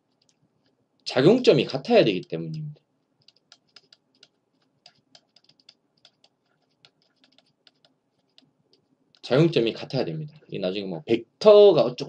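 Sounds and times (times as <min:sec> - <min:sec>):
stylus tapping tablet screen: 0:01.9 - 0:09.4.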